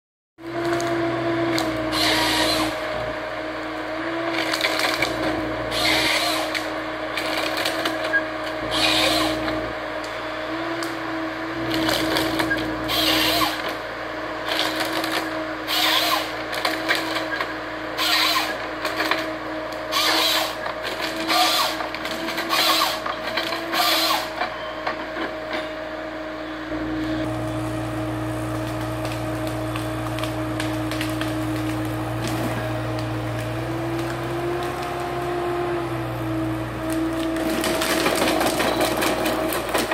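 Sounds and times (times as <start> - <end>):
harvester engine and hydraulic whine: 0.4 - 39.9
wood cracking and splintering: 4.2 - 9.6, 11.6 - 13.8, 14.5 - 24.4, 28.4 - 35.4, 36.7 - 39.9.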